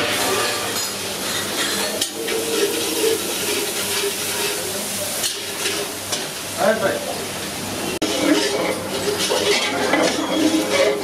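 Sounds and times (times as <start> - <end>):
frying and stirring hiss: 0.0 - 11.0.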